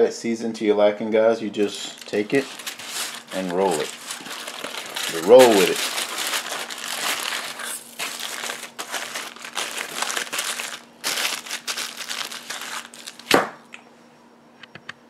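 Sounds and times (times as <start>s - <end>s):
aluminium foil crinkling: 1.6s - 13.4s.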